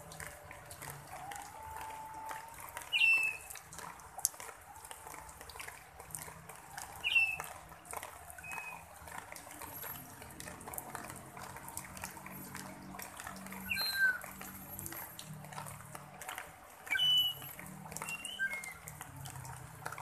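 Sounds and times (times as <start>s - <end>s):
light rain on leaves and gravel: 0.0s - 20.0s
bird chirps: 13.7s - 14.3s, 16.9s - 17.4s.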